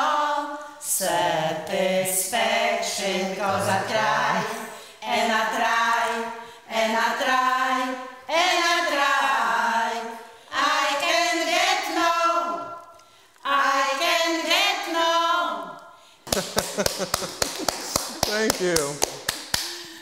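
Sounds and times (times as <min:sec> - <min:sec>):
women singing unaccompanied: 0:00.0 - 0:12.8, 0:13.4 - 0:15.8.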